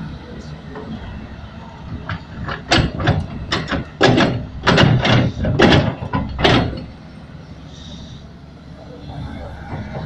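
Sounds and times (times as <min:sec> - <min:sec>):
diesel engine drone: 0:00.0 - 0:10.0
excavator bucket scraping earth: 0:02.1 - 0:06.9.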